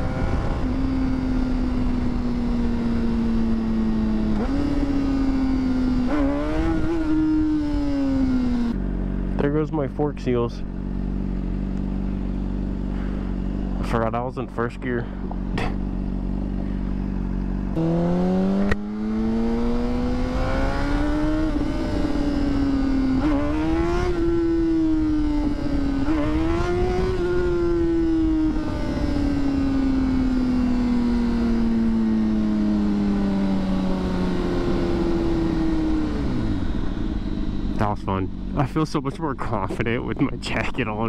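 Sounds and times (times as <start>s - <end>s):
wind rush on microphone: 0.0s - 5.2s, 24.0s - 30.4s
motorcycle engine accelerating: 0.0s - 41.0s.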